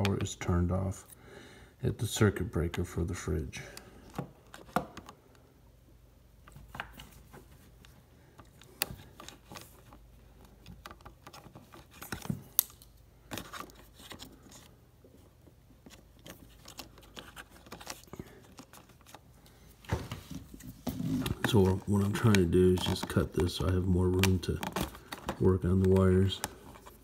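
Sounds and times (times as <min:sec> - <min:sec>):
handling rustle: 0:06.5 - 0:27.0.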